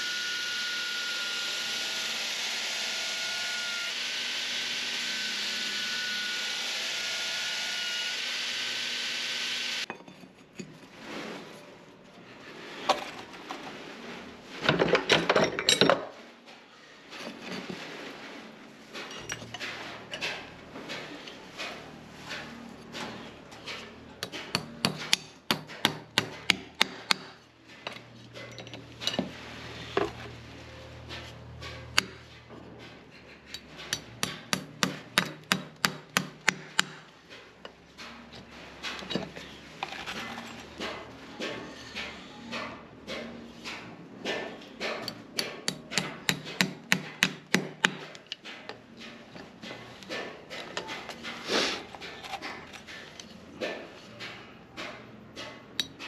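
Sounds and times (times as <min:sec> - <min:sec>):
hammer striking horseshoe nails: 0:24.2 - 0:27.4, 0:32.0 - 0:32.2, 0:33.5 - 0:37.1, 0:44.2 - 0:48.8.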